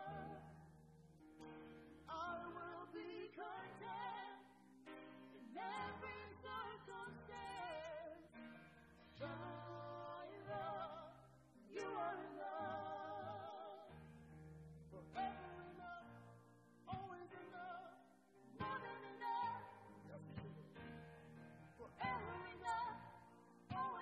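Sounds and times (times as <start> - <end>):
stage piano: 0.0 - 24.0
woman and man singing: 2.1 - 4.6, 5.4 - 8.3, 9.2 - 13.9, 14.9 - 16.3, 16.9 - 18.0, 18.6 - 20.7, 21.8 - 24.0.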